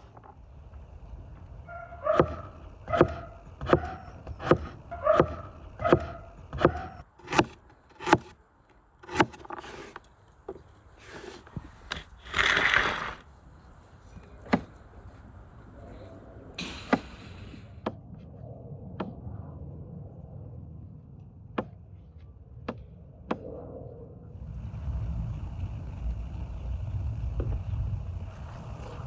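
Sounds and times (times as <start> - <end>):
knife chopping on wooden board: 2.2 - 8.3
rustling scrape: 9.3 - 10.0, 11.0 - 13.3.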